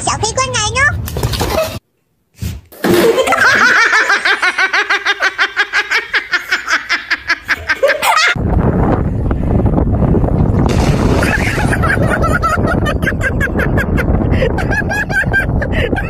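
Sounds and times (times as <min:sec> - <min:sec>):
person laughing: 0:02.9 - 0:08.4, 0:11.1 - 0:16.0
wind on microphone: 0:08.4 - 0:16.0.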